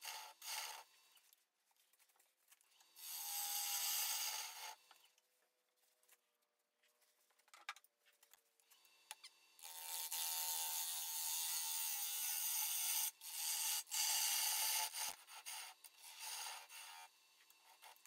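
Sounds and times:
lathe gouge shearing wood: 0:00.0 - 0:00.9, 0:03.0 - 0:04.8, 0:09.6 - 0:18.0.

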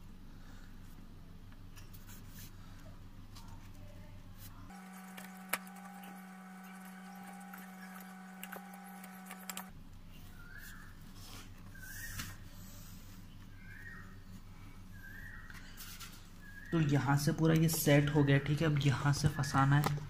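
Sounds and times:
steady hum: 0:04.7 - 0:09.7.

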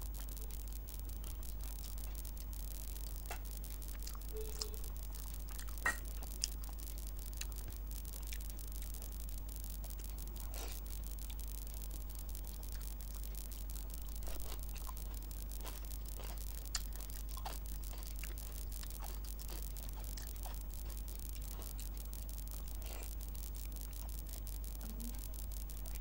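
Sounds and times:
chewing food: 0:00.0 - 0:26.0
low electrical hum: 0:00.0 - 0:26.0
wet mouth clicks and smacks: 0:05.6 - 0:06.2.

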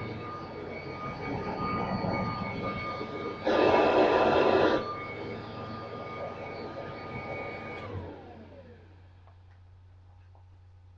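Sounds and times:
vacuum cleaner whining: 0:00.0 - 0:09.1
vacuum motor spinning down: 0:01.9 - 0:09.1.

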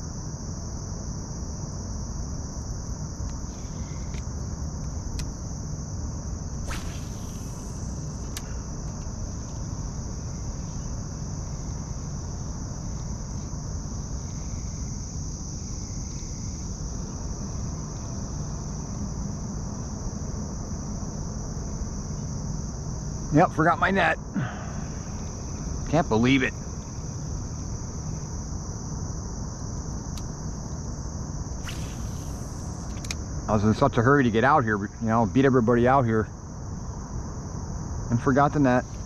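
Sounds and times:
insects chirring: 0:00.0 - 0:39.0
short swish: 0:06.7 - 0:08.3, 0:31.6 - 0:32.9.

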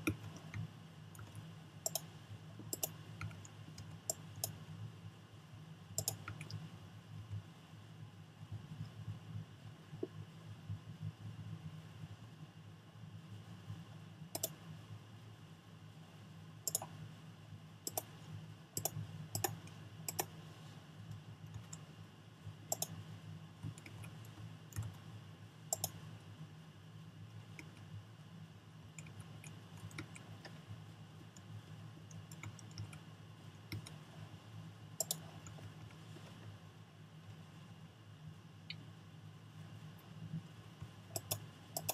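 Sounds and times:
computer mouse and keyboard clicks: 0:00.0 - 0:04.6, 0:06.0 - 0:06.7, 0:14.3 - 0:14.6, 0:16.6 - 0:17.0, 0:17.8 - 0:18.2, 0:18.8 - 0:20.4, 0:21.1 - 0:21.9, 0:22.7 - 0:23.0, 0:23.6 - 0:25.0, 0:25.7 - 0:26.0, 0:28.9 - 0:34.0, 0:35.0 - 0:36.5, 0:40.8 - 0:41.9
steady low hum: 0:00.0 - 0:41.9.

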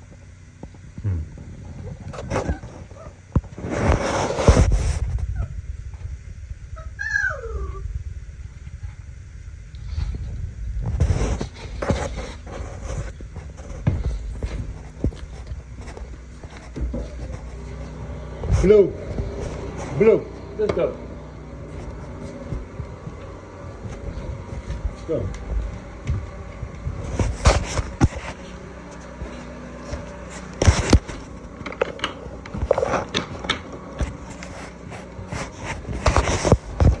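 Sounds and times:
footsteps and knocks: 0:10.8 - 0:19.8, 0:21.6 - 0:37.0.

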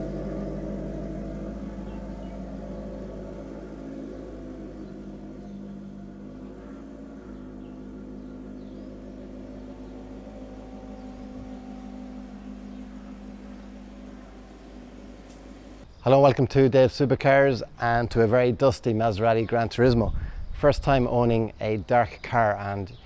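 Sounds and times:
car engine low deep hum: 0:00.0 - 0:15.8.

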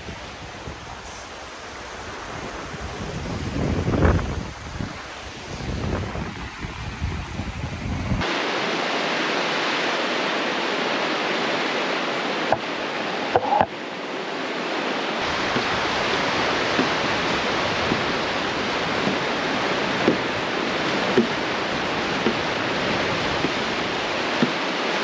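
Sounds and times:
wind buffeting microphone: 0:00.0 - 0:08.3, 0:15.2 - 0:25.0
creek water rushing: 0:00.0 - 0:25.0.

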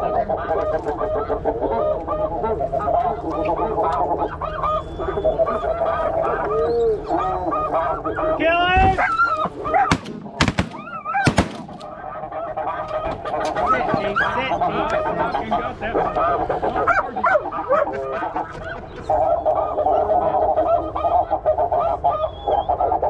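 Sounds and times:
geese honking: 0:00.0 - 0:23.0
shotgun shots: 0:09.9 - 0:12.1.

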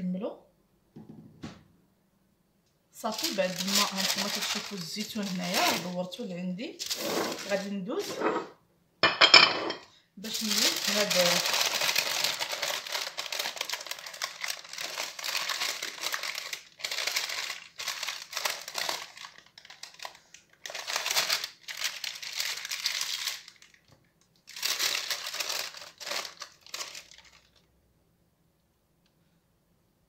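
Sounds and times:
baking paper crinkling: 0:03.0 - 0:08.4, 0:10.2 - 0:27.8.

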